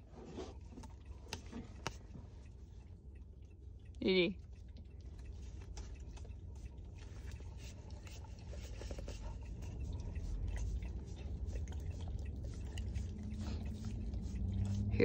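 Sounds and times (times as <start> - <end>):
low steady hum: 0.0 - 15.0
dog lapping wetly: 4.4 - 15.0.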